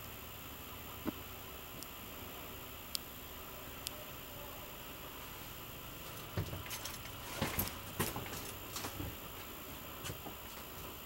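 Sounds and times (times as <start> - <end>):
faint steady hiss: 0.0 - 11.0
footsteps inside a camper: 5.2 - 11.0.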